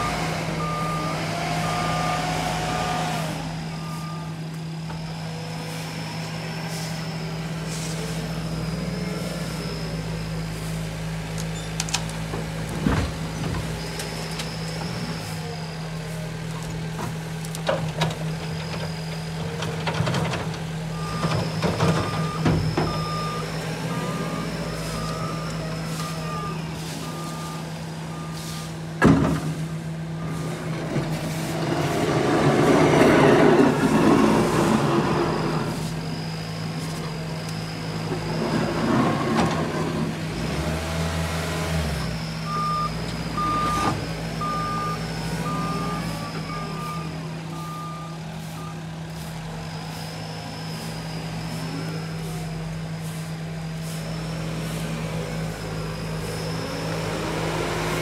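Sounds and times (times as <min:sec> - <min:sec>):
backup alarm beeping: 0:00.0 - 0:02.9, 0:20.9 - 0:28.7, 0:42.0 - 0:48.9
diesel engine running: 0:00.0 - 0:58.0.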